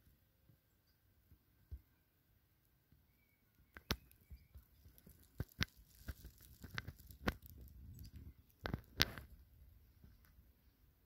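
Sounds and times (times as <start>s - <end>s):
sharp clicks and crackles: 3.7s - 9.4s.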